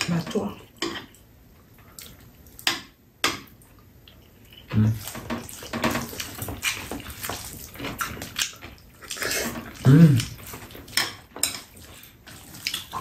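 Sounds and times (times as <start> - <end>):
chewing and mouth noises: 1.8 - 2.6, 3.6 - 13.0
wet noodle slurps: 9.0 - 10.6.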